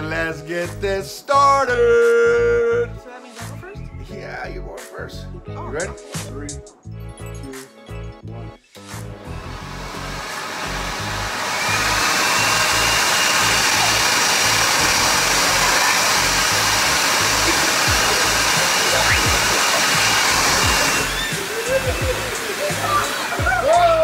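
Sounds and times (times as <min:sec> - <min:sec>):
leaf blower running: 0:09.2 - 0:24.0.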